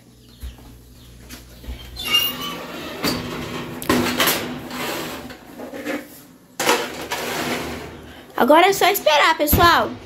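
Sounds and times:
oven door opening: 0:01.9 - 0:05.5
metallic scrape: 0:04.6 - 0:08.1.

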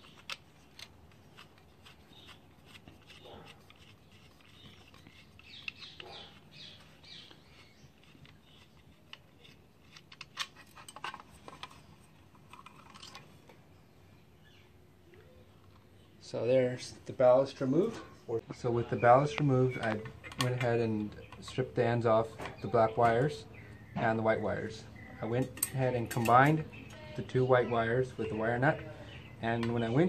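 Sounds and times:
screwdriver scraping metal housing: 0:00.0 - 0:13.3.

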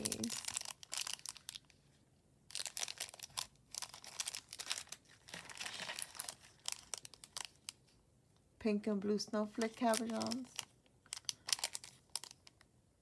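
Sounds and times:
plastic bags crinkling: 0:00.0 - 0:01.8, 0:02.5 - 0:07.8, 0:09.5 - 0:12.6.

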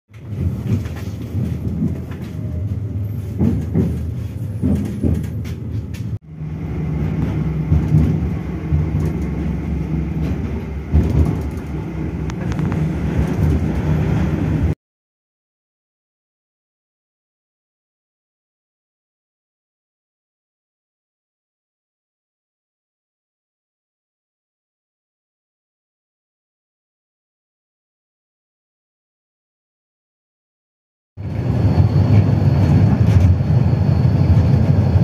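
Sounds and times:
tram rumbling on rails: 0:00.1 - 0:14.8, 0:31.2 - 0:35.0
low hum: 0:04.5 - 0:14.8, 0:31.2 - 0:35.0.

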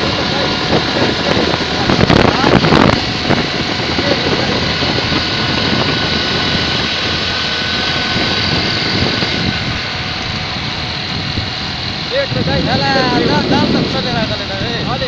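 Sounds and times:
motorcycle engine at speed: 0:00.0 - 0:15.0
wind rushing over microphone: 0:00.0 - 0:15.0.

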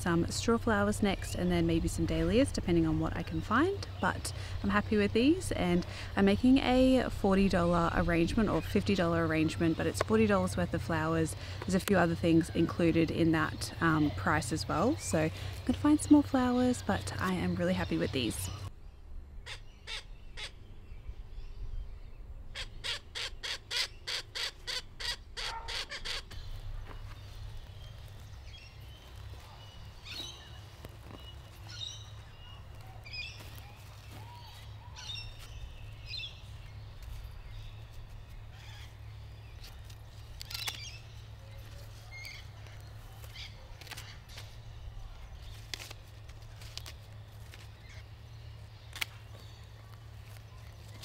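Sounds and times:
steady low rumble: 0:00.0 - 0:23.2
harsh caw-like bird calls: 0:22.5 - 0:26.5.

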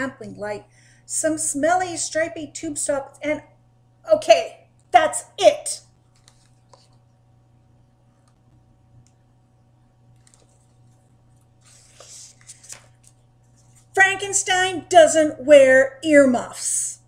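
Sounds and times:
low steady hum: 0:00.0 - 0:17.0
book page turning: 0:06.0 - 0:07.1, 0:10.1 - 0:14.0.

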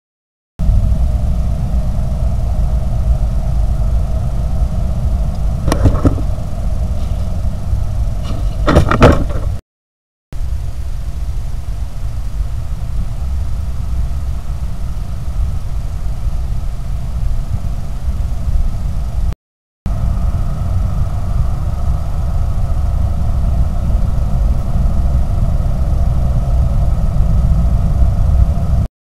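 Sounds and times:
low rumble and hiss: 0:00.6 - 0:09.6, 0:10.4 - 0:28.9
knocks: 0:05.7 - 0:06.3, 0:08.2 - 0:09.6.

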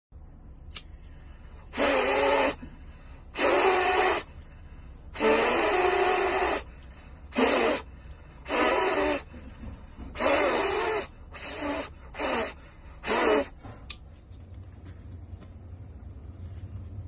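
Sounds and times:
breaths blown through face mask: 0:01.0 - 0:13.8.

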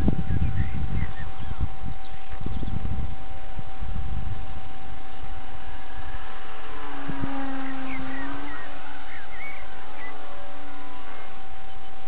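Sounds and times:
thin steady whine: 0:00.0 - 0:12.0
wind rumbling on microphone: 0:00.0 - 0:12.0
bird chirps: 0:00.2 - 0:02.8, 0:07.3 - 0:10.3.

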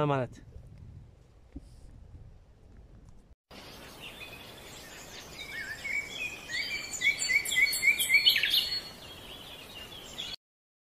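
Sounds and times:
birds chirping: 0:03.5 - 0:10.4.

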